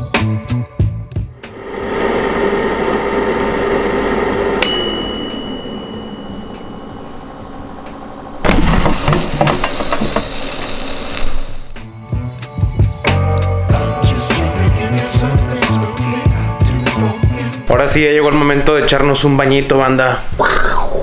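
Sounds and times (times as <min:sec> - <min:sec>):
air fryer fan running: 0:01.5 - 0:11.2
timer bell ring: 0:04.4 - 0:08.4.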